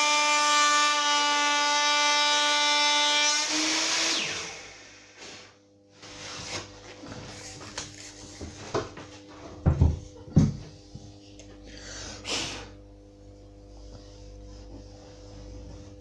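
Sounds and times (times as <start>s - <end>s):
tools knocking on worktop: 9.6s - 10.7s
swishing rub: 13.2s - 16.0s.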